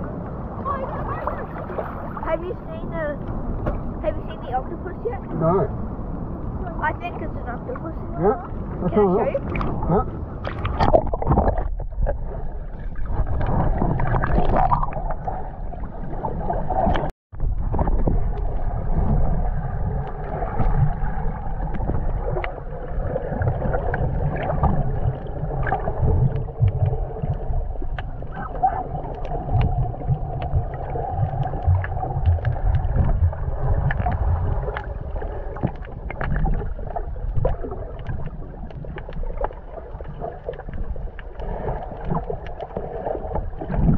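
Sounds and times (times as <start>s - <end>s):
muffled underwater rumble: 0.0s - 43.9s
water sloshing: 0.6s - 5.8s, 6.5s - 43.9s
small clicks and crackles: 23.4s - 43.9s.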